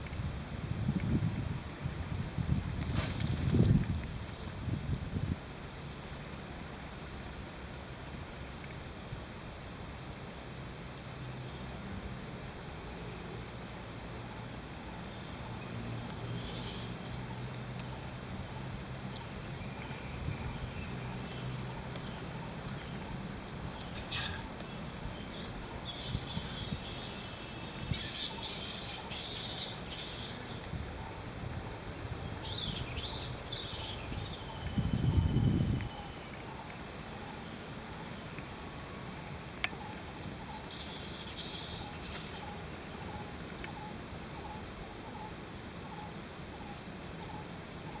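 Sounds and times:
steady outdoor hiss: 0.0 - 48.0
birds chirping: 18.4 - 31.6, 32.2 - 38.7, 39.4 - 48.0
faint high animal call: 23.9 - 24.5
short animal chirps: 23.9 - 24.5.

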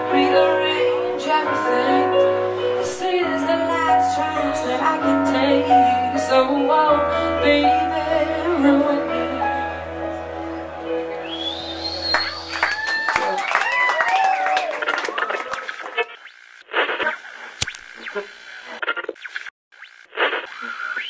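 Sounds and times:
woman singing: 0.0 - 9.8
keyboard accompaniment: 0.0 - 13.3.

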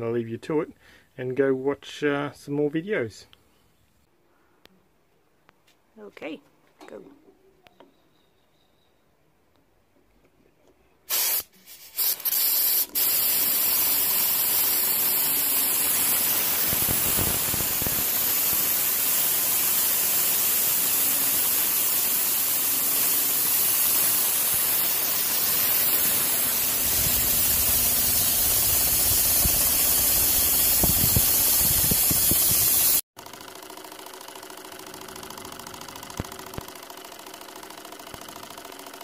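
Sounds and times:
compressed air hissing: 11.1 - 33.0.

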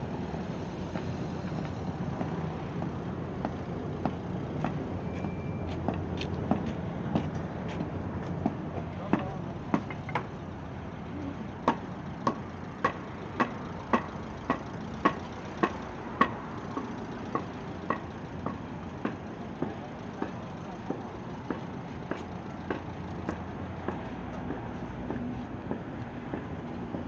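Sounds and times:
city traffic hum: 0.0 - 27.0
footsteps clicking: 0.8 - 10.2.

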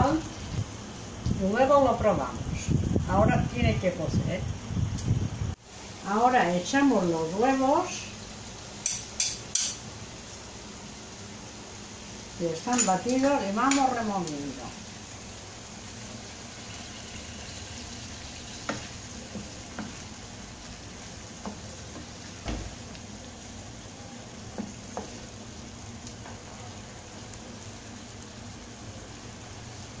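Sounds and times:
sauce sizzling in a frying pan: 0.0 - 30.0.

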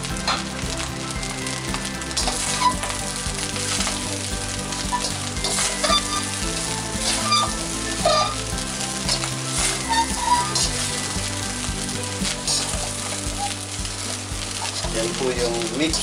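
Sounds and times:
food sizzling in a hot wok: 0.0 - 16.0.

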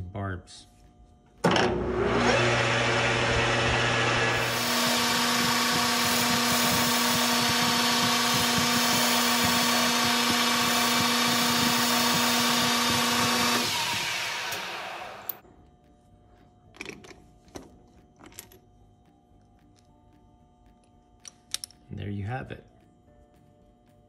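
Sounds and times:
metal lathe humming: 1.7 - 15.4.

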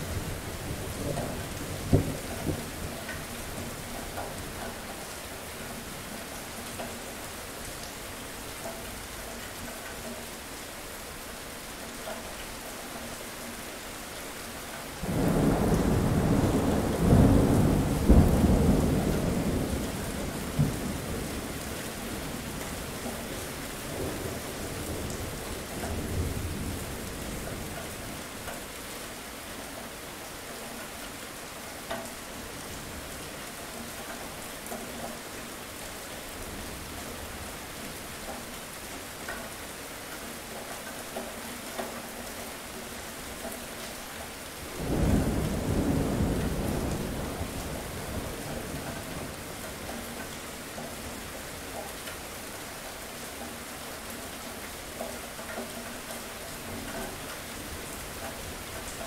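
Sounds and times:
steady rain: 0.0 - 59.0.

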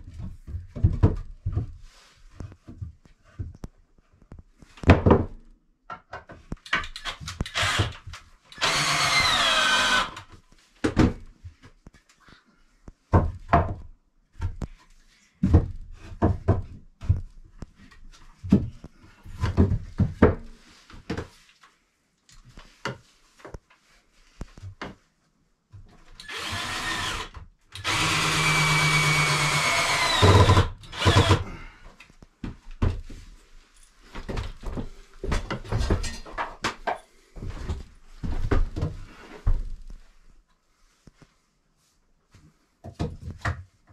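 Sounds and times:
cordless drill driving screws: 7.0 - 10.2, 26.2 - 31.4.

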